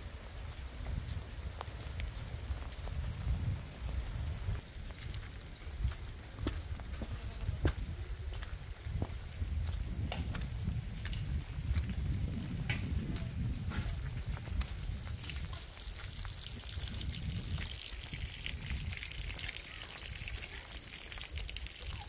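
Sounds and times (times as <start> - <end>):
rain pattering: 0.0 - 7.0, 7.6 - 22.0
rainwater running over mud: 0.0 - 22.0.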